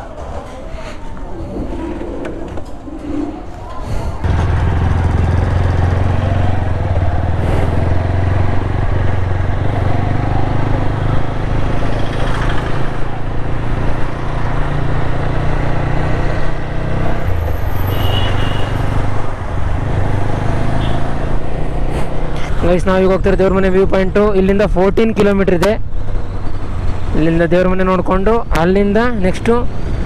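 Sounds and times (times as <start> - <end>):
motorcycle engine running: 4.2 - 13.5.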